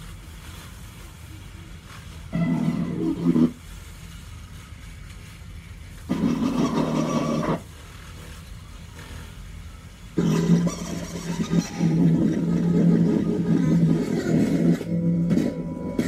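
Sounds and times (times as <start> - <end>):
low amplifier hum: 0.0 - 16.0
harsh distorted guitar noise: 2.3 - 3.6, 6.1 - 7.7, 10.2 - 16.0.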